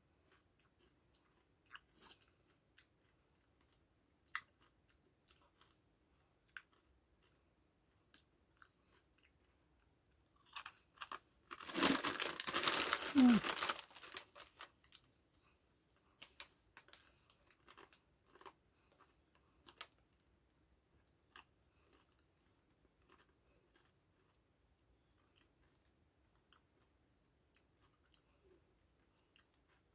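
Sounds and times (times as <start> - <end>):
crisp packet crinkling: 10.5 - 15.1.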